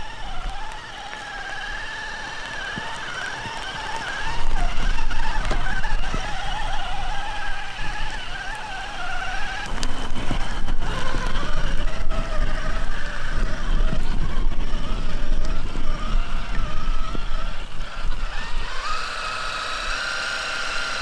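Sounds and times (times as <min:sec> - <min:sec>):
rc truck motor whining: 0:00.0 - 0:21.0
tyres crackling through mud: 0:00.0 - 0:21.0.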